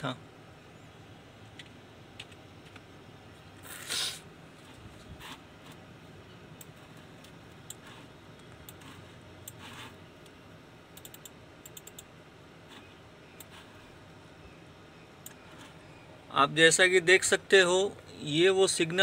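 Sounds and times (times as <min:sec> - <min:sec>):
computer clicks: 0:06.6 - 0:12.1, 0:12.7 - 0:13.6.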